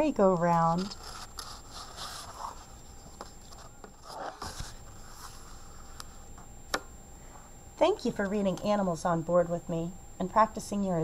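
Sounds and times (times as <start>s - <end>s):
paper rustling and scraping: 0.6s - 6.0s.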